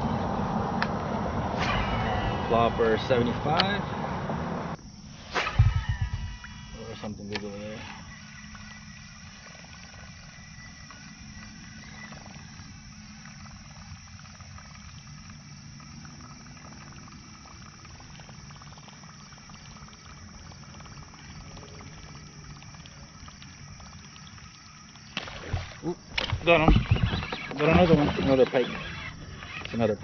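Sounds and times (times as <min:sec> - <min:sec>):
fishing reel whirring and clicking: 0:05.2 - 0:30.0.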